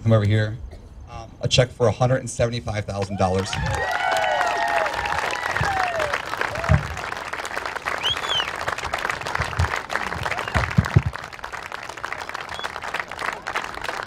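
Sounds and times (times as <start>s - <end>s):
crowd applauding: 3.2s - 14.0s
short high whistle: 8.0s - 8.5s.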